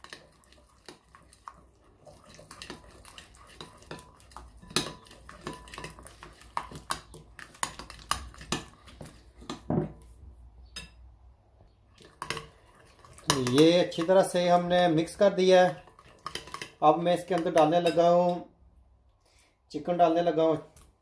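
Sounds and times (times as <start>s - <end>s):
spoon clinking against glass bowl: 2.3s - 8.7s, 13.1s - 14.2s, 16.2s - 18.4s.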